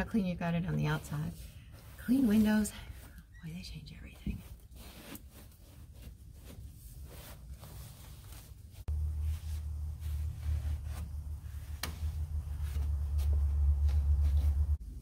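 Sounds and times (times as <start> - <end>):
cloth wiping dashboard: 0.1 - 14.8
steady low rumble: 8.7 - 15.0.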